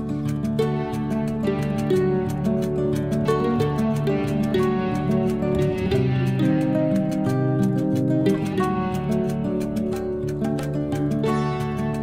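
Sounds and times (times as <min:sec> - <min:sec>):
plucked strings melody: 0:00.0 - 0:12.0.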